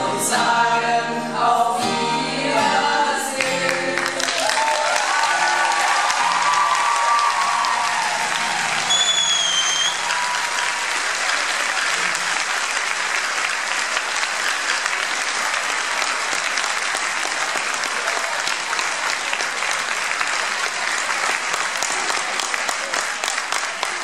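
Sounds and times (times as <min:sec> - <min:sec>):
audience applauding: 0:03.4 - 0:24.0
high whistle: 0:08.8 - 0:10.4.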